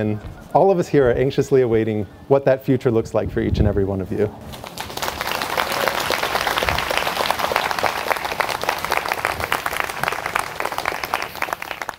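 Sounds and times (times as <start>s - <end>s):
audience applauding: 4.5s - 11.9s.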